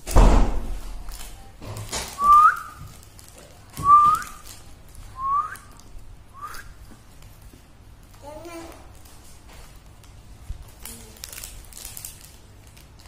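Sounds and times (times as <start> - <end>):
person whistling rising notes: 3.8 - 4.4, 5.2 - 5.7, 6.4 - 6.7.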